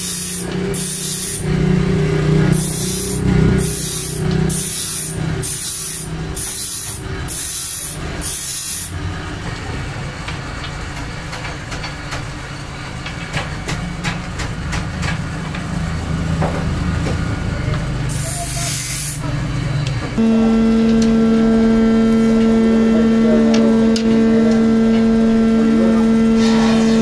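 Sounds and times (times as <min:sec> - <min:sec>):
workshop machine humming: 0:00.0 - 0:27.0
hissing rubbing strokes on wood: 0:26.4 - 0:27.0.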